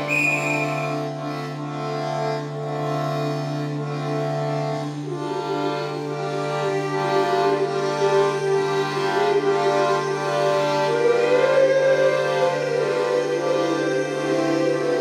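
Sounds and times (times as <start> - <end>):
low drone note: 0.0 - 1.9, 4.9 - 15.0
free-reed keyboard chords: 1.0 - 15.0.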